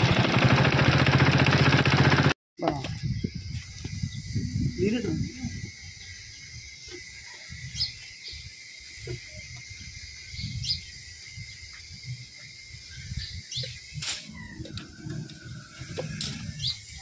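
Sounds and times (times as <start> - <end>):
birds chirping: 2.7 - 17.0.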